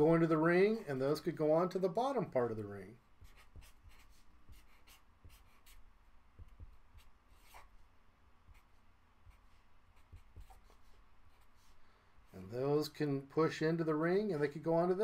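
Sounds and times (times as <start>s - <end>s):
marker scratching on paper: 3.2s - 7.8s, 8.4s - 11.8s.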